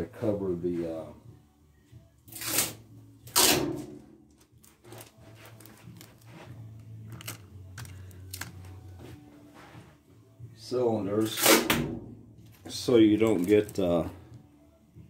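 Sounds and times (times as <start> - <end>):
plastic film rustling: 4.5 - 6.5, 12.6 - 14.0.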